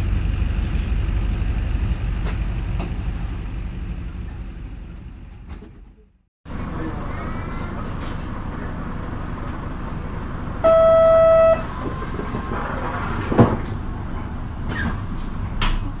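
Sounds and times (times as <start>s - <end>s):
bus engine rumble: 0.0s - 16.0s
loud steady tone: 10.4s - 12.5s.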